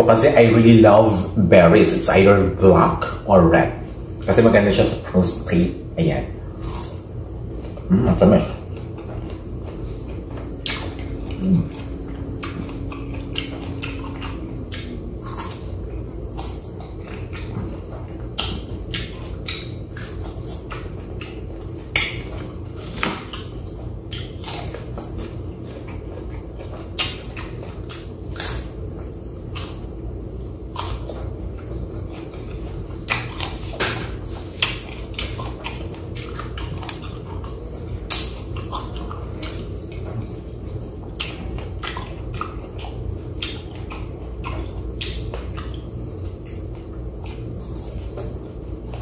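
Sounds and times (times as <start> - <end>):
low hum: 0.0 - 49.0
person chewing fruit: 6.2 - 49.0
mouth clicks and smacks: 18.4 - 24.9.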